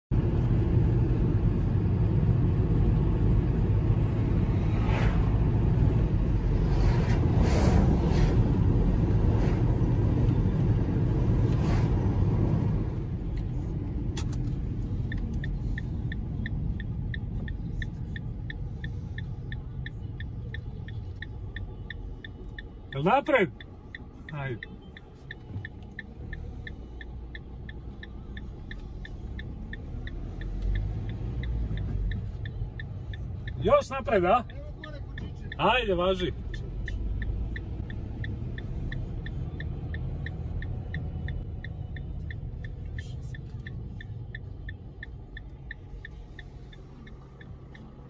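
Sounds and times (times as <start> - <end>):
low rumble of tyres and engine: 0.0 - 48.0
vehicles whooshing past: 0.8 - 19.5
turn indicator ticking: 8.4 - 48.0.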